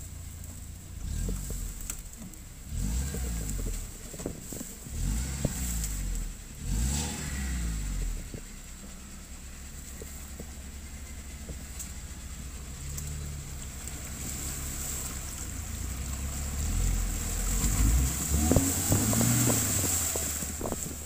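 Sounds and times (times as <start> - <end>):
engine pulling under load: 0.0 - 21.0
water churning and splashing: 13.3 - 21.0.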